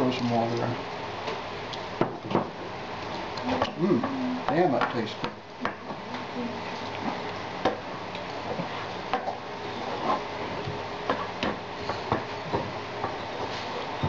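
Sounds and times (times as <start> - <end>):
steady low hum: 0.0 - 14.0
wooden spatula scraping a pan: 9.8 - 10.3.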